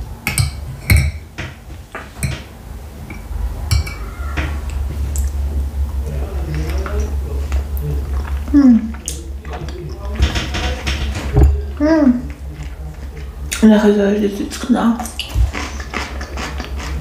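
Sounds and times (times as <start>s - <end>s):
low rumble: 2.6s - 14.5s
biting into dumpling: 15.2s - 17.0s.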